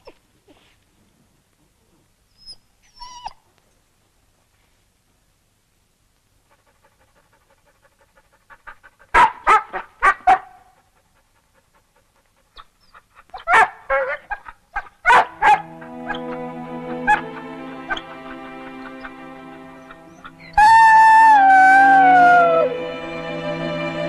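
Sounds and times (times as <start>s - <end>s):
dog barking: 9.1s - 10.8s, 13.4s - 16.2s
music with held notes: 15.3s - 24.0s.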